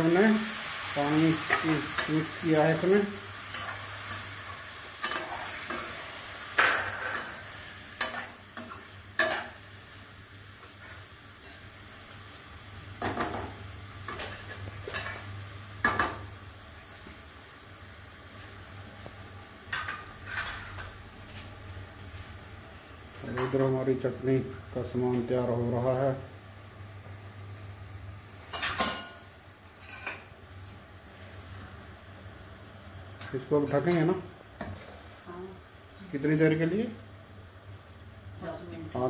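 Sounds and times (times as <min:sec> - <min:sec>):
gentle sizzle: 0:00.0 - 0:39.0
metal spoon clinking and scraping pan: 0:05.0 - 0:06.0, 0:08.0 - 0:09.6, 0:19.7 - 0:20.9, 0:28.5 - 0:29.2, 0:29.8 - 0:30.3.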